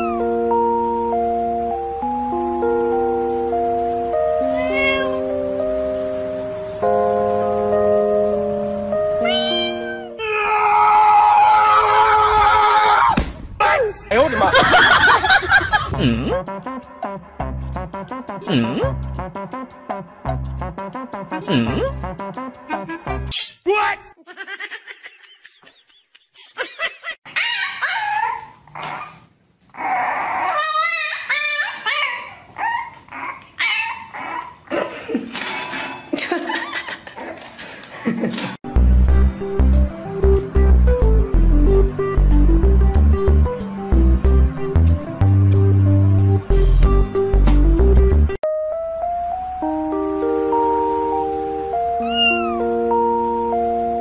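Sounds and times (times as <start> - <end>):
puppies yipping and whining: 0.0 - 0.3, 27.3 - 34.7, 52.0 - 52.7
background music of held notes: 0.0 - 10.2, 38.7 - 54.0.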